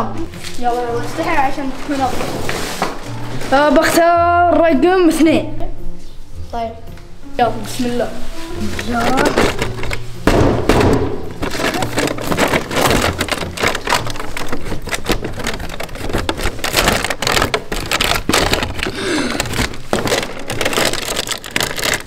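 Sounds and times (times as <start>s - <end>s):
paper and plastic crinkling: 0.1s - 4.1s, 8.0s - 22.0s
cardboard tearing: 8.6s - 10.0s, 10.9s - 22.0s.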